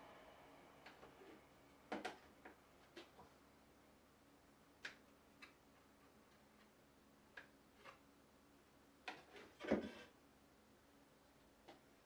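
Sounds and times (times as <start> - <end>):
faint wooden clicks and taps: 4.8 - 8.0.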